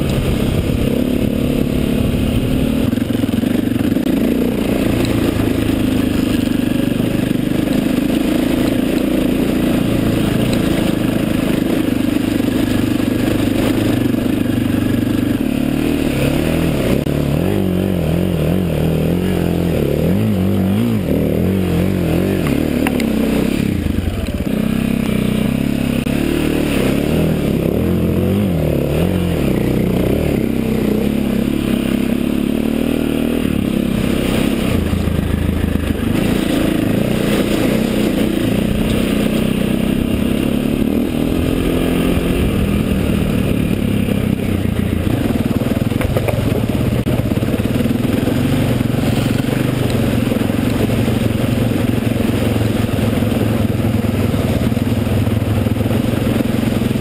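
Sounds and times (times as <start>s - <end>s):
motorcycle engine revving: 0.0s - 57.0s
wheels splashing through water: 0.0s - 57.0s.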